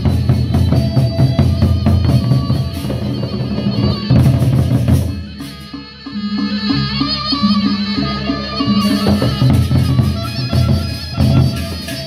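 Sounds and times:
fast dense drumming: 0.0s - 5.7s, 8.5s - 12.0s.

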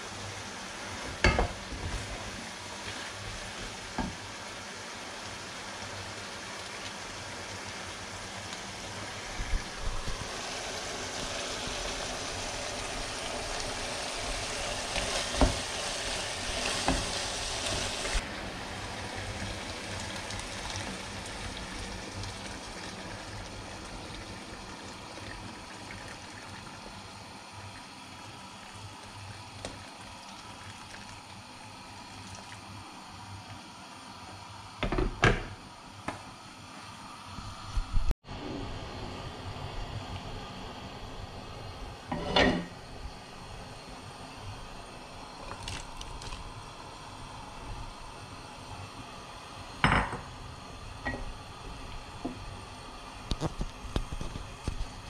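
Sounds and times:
stew sizzling and bubbling in pot: 0.0s - 55.0s
water pouring from kettle: 19.0s - 32.7s, 45.3s - 46.7s.

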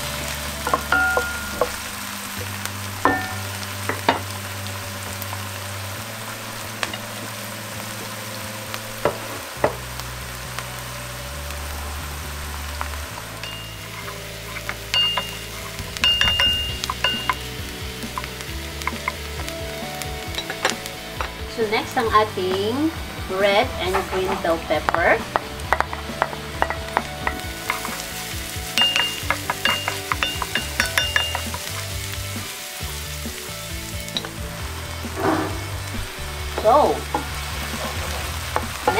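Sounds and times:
onions sizzling in oil: 0.0s - 38.9s.

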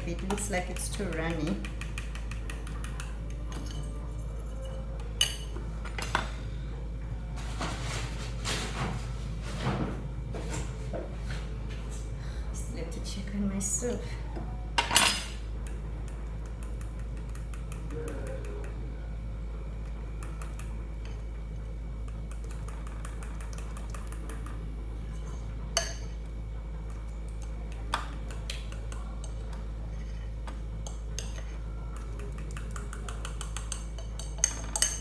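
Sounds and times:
utensils clattering against dishes: 14.8s - 15.4s, 32.2s - 35.0s.

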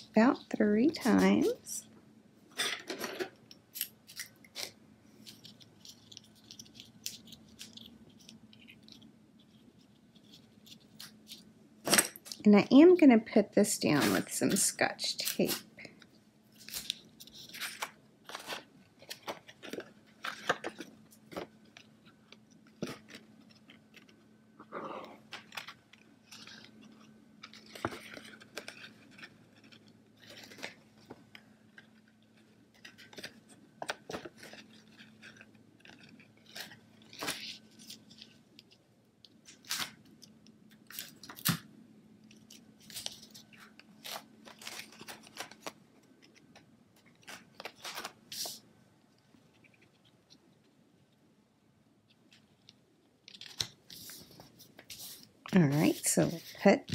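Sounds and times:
paper rustling and crinkling: 3.7s - 12.0s, 15.2s - 24.2s, 25.0s - 38.8s, 42.3s - 48.6s, 52.2s - 56.9s.

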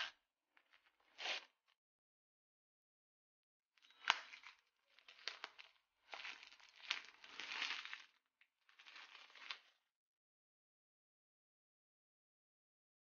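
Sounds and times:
plastic shrink wrap crinkling: 4.0s - 9.7s.

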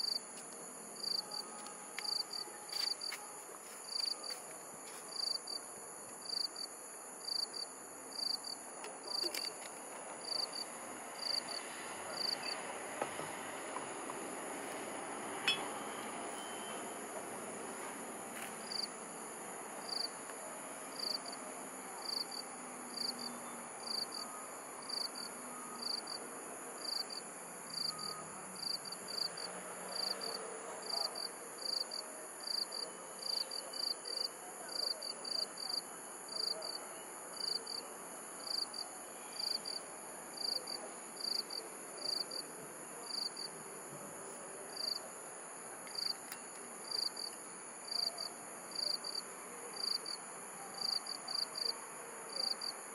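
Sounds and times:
crickets chirping: 0.0s - 52.9s
steady high insect trill: 10.2s - 11.6s, 18.6s - 20.2s, 22.0s - 30.3s, 38.4s - 43.6s, 45.9s - 50.2s.

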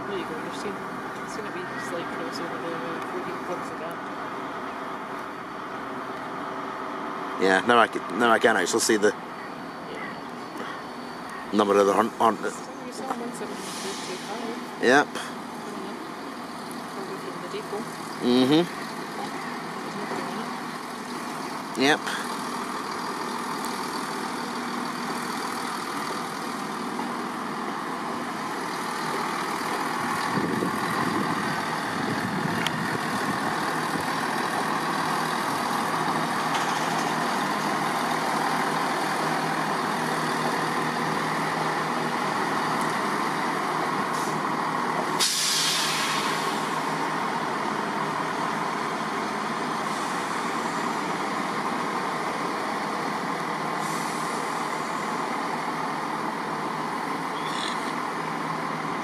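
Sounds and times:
diesel train engines running: 0.0s - 59.0s
compressed air hiss: 13.6s - 14.4s, 45.2s - 46.8s, 53.8s - 54.6s.

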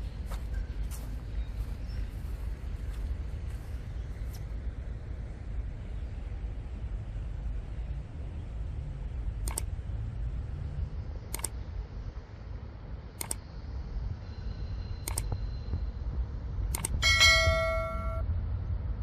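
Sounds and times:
mouse double clicks: 9.4s - 9.7s, 11.3s - 11.6s, 13.2s - 13.4s, 15.0s - 15.3s, 16.7s - 17.0s
notification bell ding: 17.0s - 18.2s.

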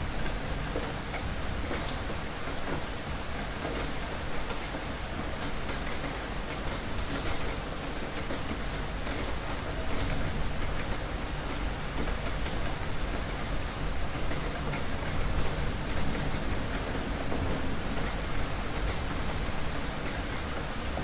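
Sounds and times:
heavy rain falling: 0.0s - 21.0s.

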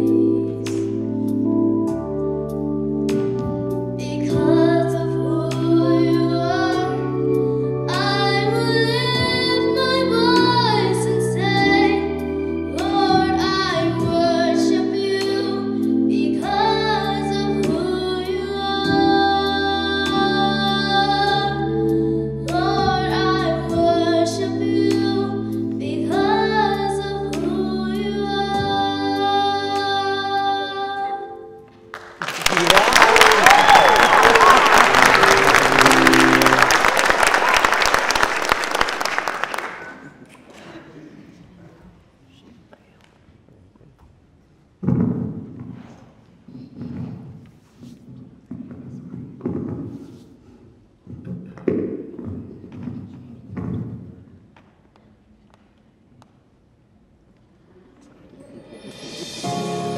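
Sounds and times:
girl singing into a microphone: 0.0s - 1.2s, 4.0s - 31.7s
instrumental accompaniment: 0.0s - 40.0s, 58.4s - 59.9s.

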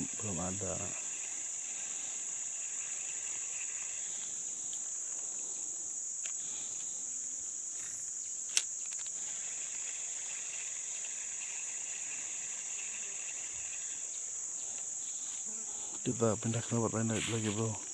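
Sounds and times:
high-pitched insect chorus: 0.0s - 17.9s.

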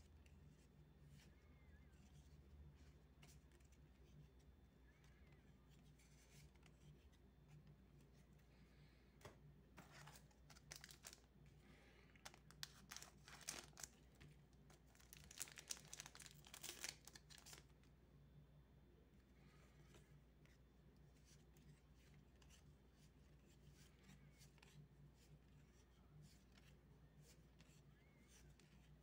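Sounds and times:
foil pack crinkling and tearing: 10.5s - 11.2s, 12.2s - 14.0s, 14.8s - 17.7s.

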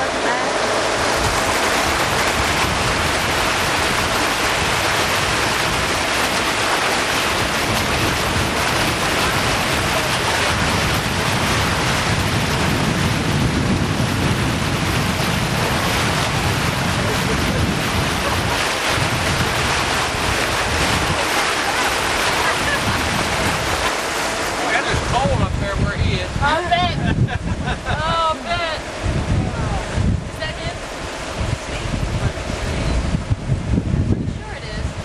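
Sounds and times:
water splashing past boat hull: 0.0s - 35.0s
wind rushing across microphone: 0.0s - 35.0s.

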